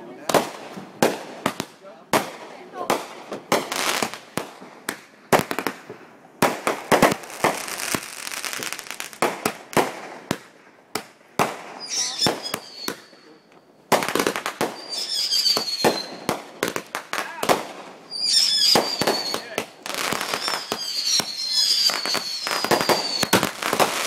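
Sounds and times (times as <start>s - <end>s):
fireworks bangs: 0.0s - 24.0s
fireworks crackling: 0.0s - 24.0s
high fireworks whistles: 6.4s - 10.4s, 11.4s - 24.0s.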